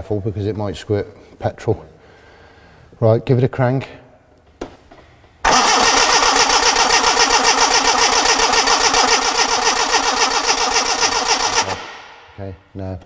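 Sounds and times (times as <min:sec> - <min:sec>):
engine cranking on starter motor: 0:05.5 - 0:12.2.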